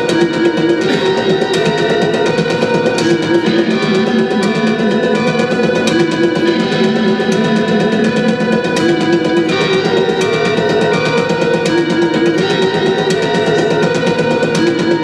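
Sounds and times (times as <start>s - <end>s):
electric guitar picking: 0.0s - 15.0s.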